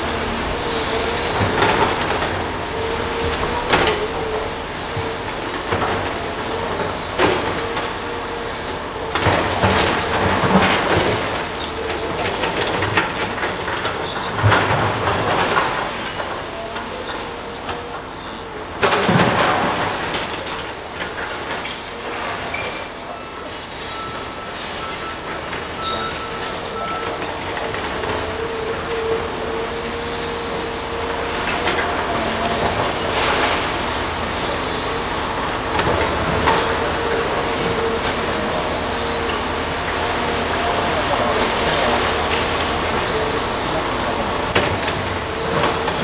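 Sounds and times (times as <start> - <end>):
heavy machinery running: 0.0 - 46.0
thin squealing tones: 22.6 - 27.1.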